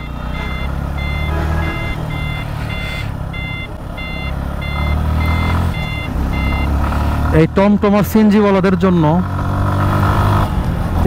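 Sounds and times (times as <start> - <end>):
vehicle beeper short high beeps: 0.0 - 6.8
vehicle engines rumbling: 0.0 - 11.0.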